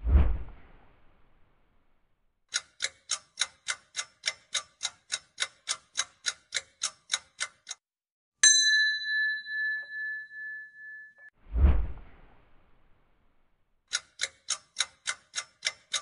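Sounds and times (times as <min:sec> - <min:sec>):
clock ticking: 0:02.5 - 0:07.8, 0:13.9 - 0:16.0
bright ding: 0:08.4 - 0:11.4.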